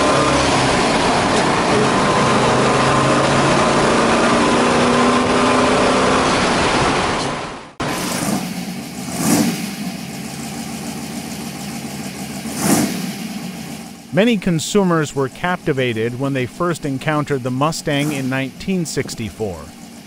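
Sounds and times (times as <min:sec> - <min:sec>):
car engine under throttle: 0:00.0 - 0:20.0
car engine idling: 0:07.7 - 0:20.0
engine throttle blip: 0:07.8 - 0:20.0.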